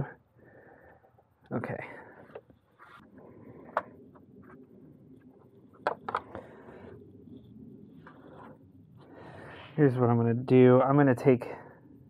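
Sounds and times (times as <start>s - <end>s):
faint background noise: 0.0s - 12.0s.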